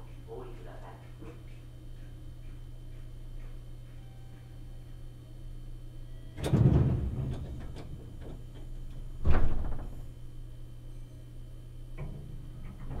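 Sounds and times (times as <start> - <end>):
train car low hum: 0.0 - 13.0
loud clattering knocks: 6.4 - 8.4.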